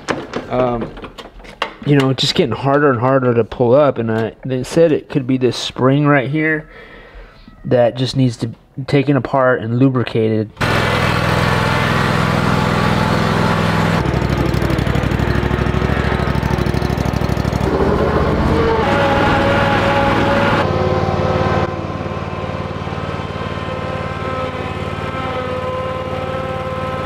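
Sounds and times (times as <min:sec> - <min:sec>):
mower engine running: 0:10.6 - 0:27.0.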